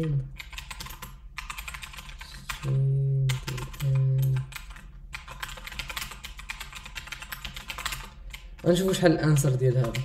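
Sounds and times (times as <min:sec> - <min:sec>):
keyboard typing: 0:00.0 - 0:10.0
low steady hums: 0:00.0 - 0:10.0.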